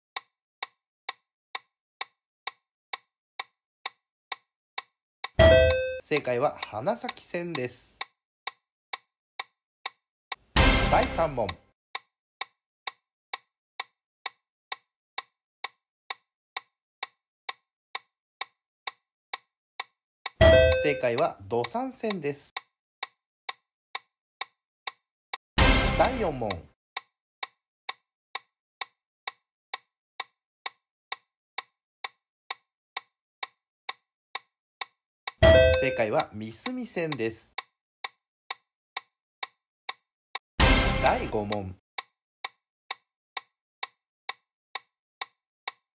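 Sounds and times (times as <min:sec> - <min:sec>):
countdown timer ticking: 0:05.2 - 0:08.1, 0:10.6 - 0:11.6, 0:20.3 - 0:22.6, 0:25.6 - 0:26.8, 0:35.3 - 0:37.6, 0:40.6 - 0:41.8
clock ticking: 0:05.2 - 0:11.6, 0:12.4 - 0:40.0, 0:40.6 - 0:41.8, 0:42.4 - 0:45.8.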